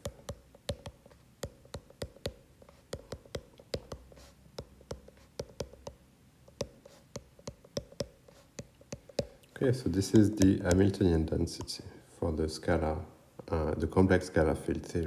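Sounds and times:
stylus clicking on glass screen: 0.0 - 11.0.

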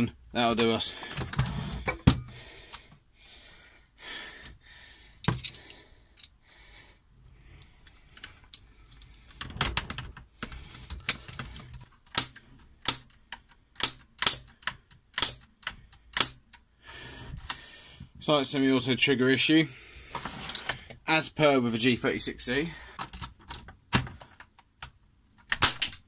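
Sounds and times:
sharp pneumatic clicks: 12.1 - 16.6.

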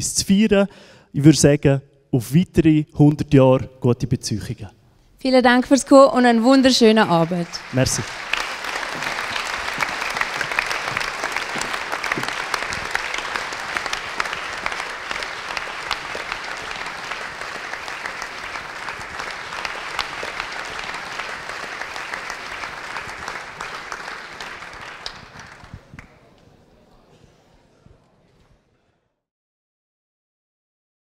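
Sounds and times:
audience applauding: 6.7 - 26.4.

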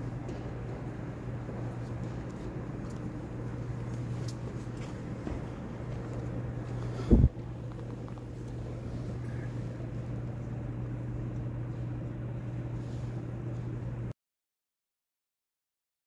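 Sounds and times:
low hum of church interior: 0.0 - 14.1.

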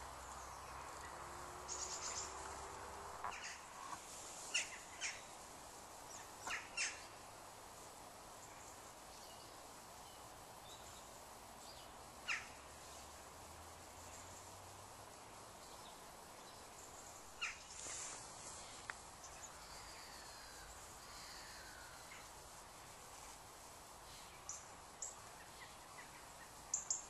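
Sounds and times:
faint outdoor hiss: 0.0 - 27.0
birds chirping: 0.2 - 5.4, 6.0 - 7.2.

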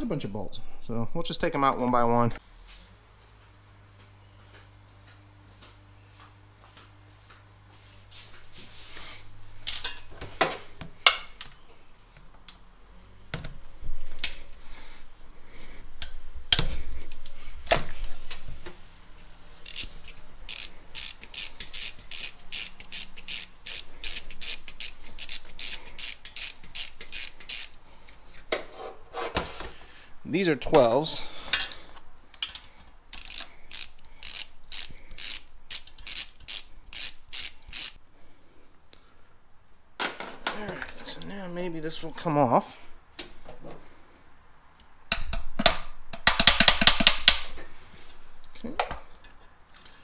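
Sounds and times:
socket ratchet clicking: 19.6 - 27.8, 33.1 - 38.0.

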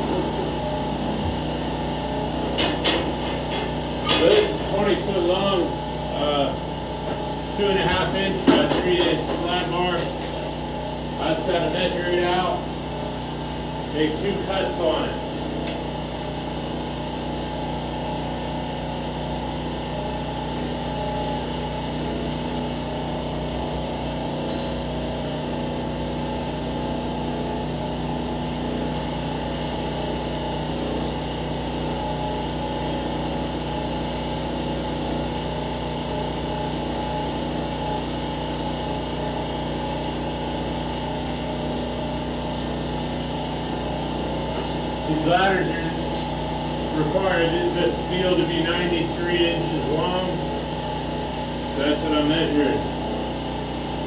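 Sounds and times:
machine humming: 0.0 - 54.0.

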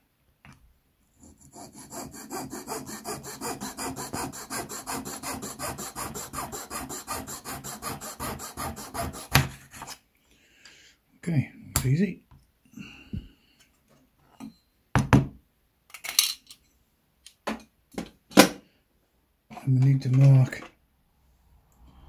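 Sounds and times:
saw cutting wood: 1.2 - 9.6.

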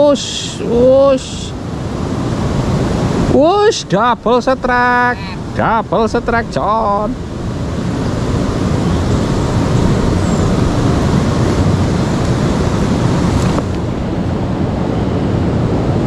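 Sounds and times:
river water rushing: 0.0 - 16.0
wind rumbling on microphone: 0.0 - 16.0.

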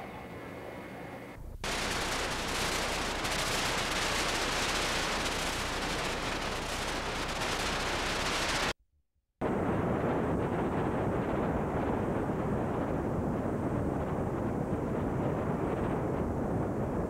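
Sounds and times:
tape static hiss: 1.3 - 8.7.

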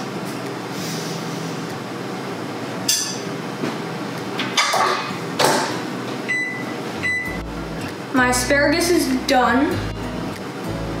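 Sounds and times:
steady low hum: 5.2 - 11.0.

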